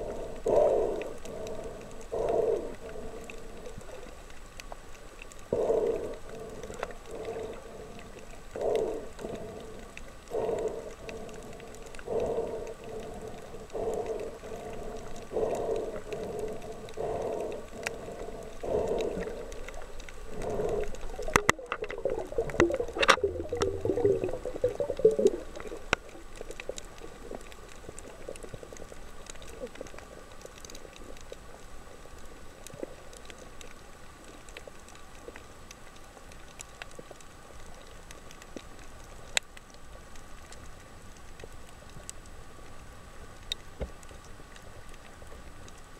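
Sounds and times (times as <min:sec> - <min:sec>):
steady low underwater hum: 0:00.0 - 0:45.9
bubbling gurgle: 0:15.4 - 0:28.8
muffled swelling pulses: 0:20.4 - 0:25.8.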